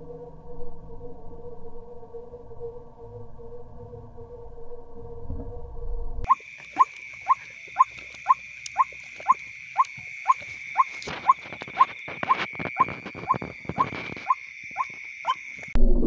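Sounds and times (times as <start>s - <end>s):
waterhen calling short kook notes: 6.3s - 15.4s
high insect drone: 6.3s - 15.8s.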